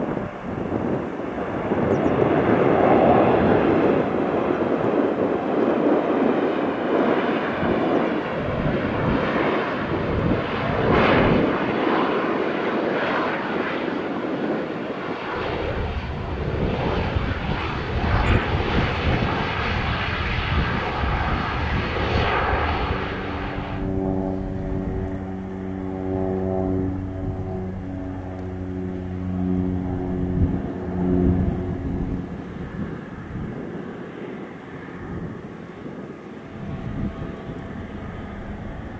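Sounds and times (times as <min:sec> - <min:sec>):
jet engines rushing: 0:00.0 - 0:38.9.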